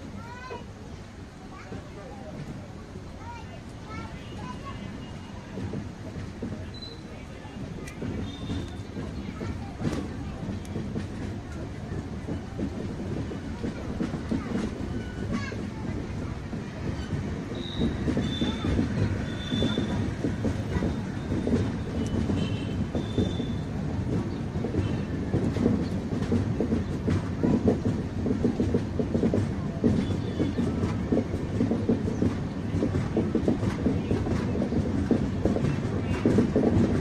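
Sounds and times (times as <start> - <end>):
train wheels clattering over track: 0.0 - 37.0
high wheel squeals: 17.0 - 20.1, 20.8 - 23.7.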